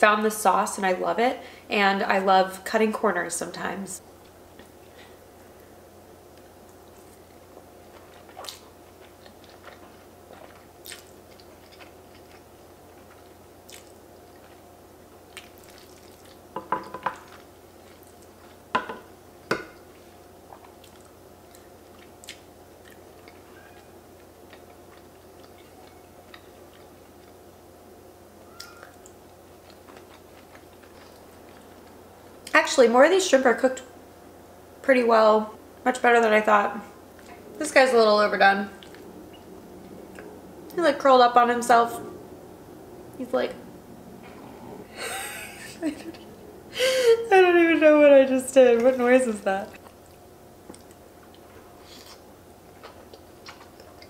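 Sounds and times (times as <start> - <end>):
person chewing pasta: 6.4 - 18.7, 19.8 - 27.5, 28.4 - 32.0, 38.8 - 40.7, 49.7 - 54.0.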